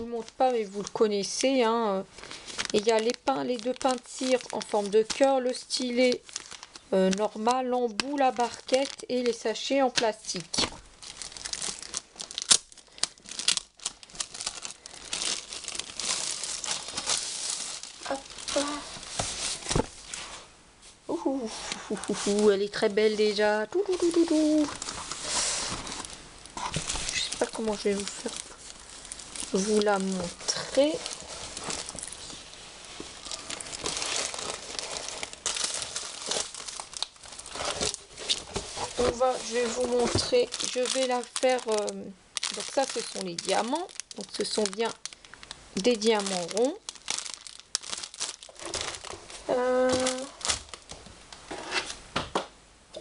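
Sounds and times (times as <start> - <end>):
plastic bag crinkling: 0.0 - 20.2, 22.0 - 51.1.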